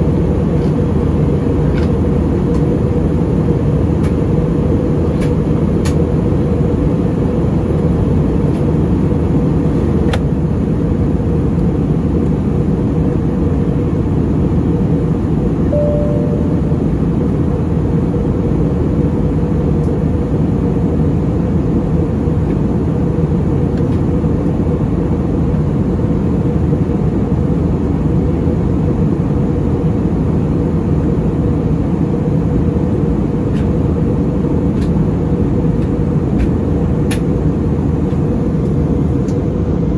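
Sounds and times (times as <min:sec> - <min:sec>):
aircraft cabin engine drone: 0:00.0 - 0:39.9
steady hum: 0:00.0 - 0:39.9
short tone: 0:15.7 - 0:16.9.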